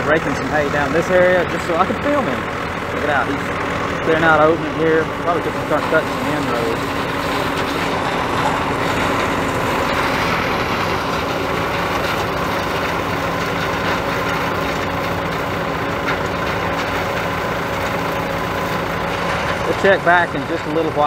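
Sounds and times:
combine harvester: 0.0 - 21.0
tractor engine running: 0.0 - 21.0.

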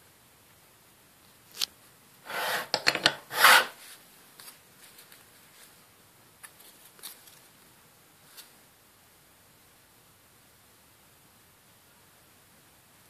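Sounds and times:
dumbbell scraping on board: 2.3 - 3.8.

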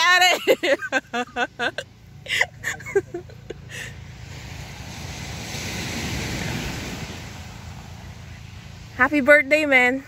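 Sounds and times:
seaside surf: 0.0 - 10.0
wind noise: 4.3 - 9.3.

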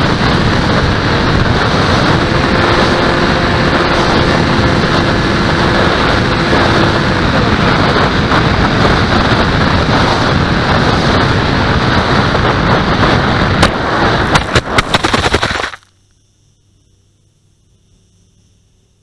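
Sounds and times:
wind rush: 0.0 - 15.8
sharp knocks and rattles of crash: 13.5 - 15.9.

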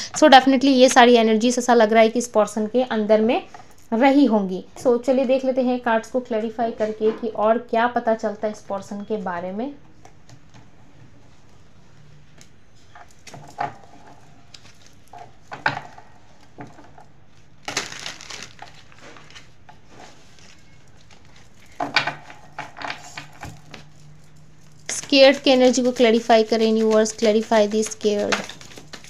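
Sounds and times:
cards being shuffled: 11.4 - 29.0
cards tapping and rustling: 12.3 - 29.0.

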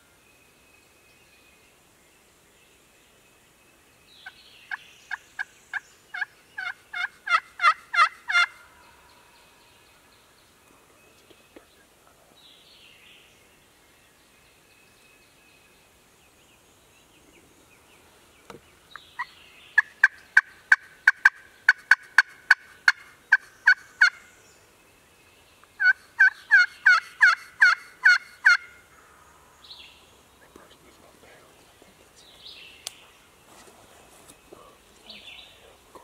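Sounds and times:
turkey yelping: 6.2 - 8.6, 19.8 - 24.2, 25.8 - 28.8.

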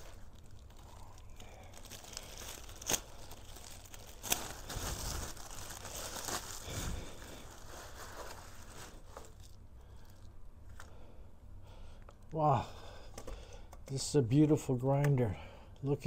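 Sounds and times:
plastic wrap snapping: 0.0 - 9.6
plastic wrap crinkling and tearing: 0.0 - 10.9.

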